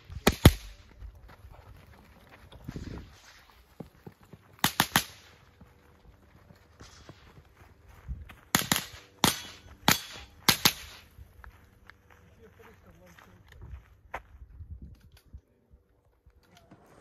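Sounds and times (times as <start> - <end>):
rifle shots: 0.2 - 0.8, 4.6 - 5.4, 8.5 - 11.1.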